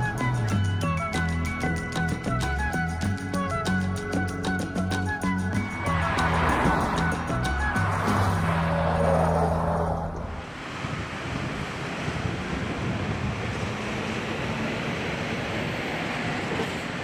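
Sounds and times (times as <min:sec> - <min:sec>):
diesel truck engine drone: 0:00.0 - 0:17.0
tyres passing: 0:03.4 - 0:10.7
steady rushing noise: 0:05.6 - 0:17.0.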